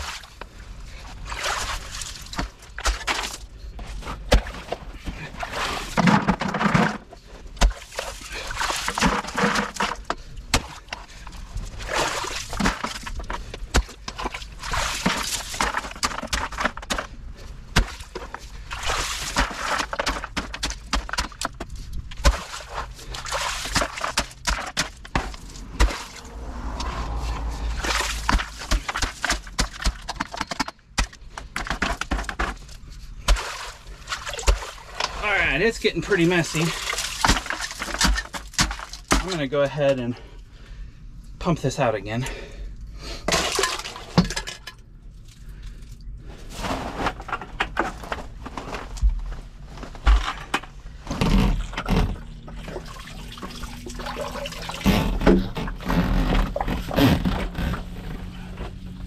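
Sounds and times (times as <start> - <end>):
water sloshing: 0.0 - 16.9, 17.8 - 29.9, 33.0 - 39.4, 51.6 - 58.0
post-hole digger crunching gravel: 1.2 - 40.2, 46.3 - 58.8.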